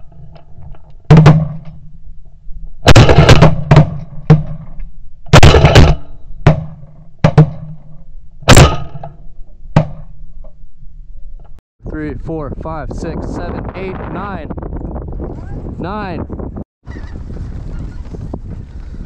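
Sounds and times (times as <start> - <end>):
shotgun blasts: 2.8 - 4.5, 5.3 - 7.7, 8.5 - 9.2.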